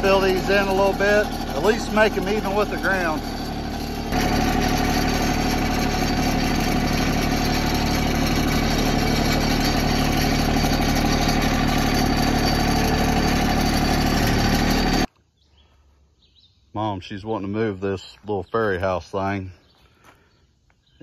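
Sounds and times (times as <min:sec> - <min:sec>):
loader bucket tipping compost: 0:00.0 - 0:15.1
tractor engine running: 0:00.0 - 0:15.1.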